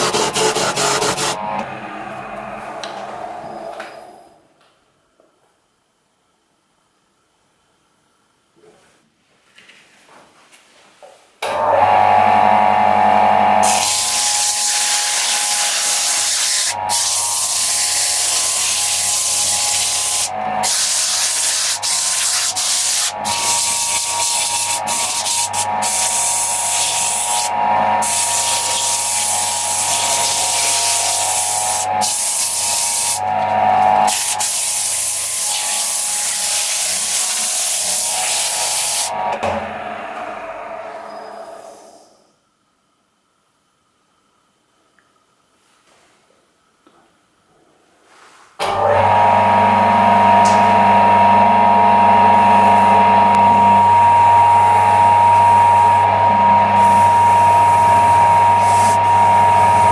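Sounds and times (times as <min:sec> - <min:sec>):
sandpaper sanding hiss: 0:00.0 - 0:01.4, 0:13.7 - 0:33.2, 0:34.1 - 0:39.1, 0:58.6 - 0:59.0
lathe motor hum: 0:00.0 - 0:04.4, 0:11.5 - 0:21.9, 0:22.8 - 0:34.4, 0:48.6 - 0:59.9.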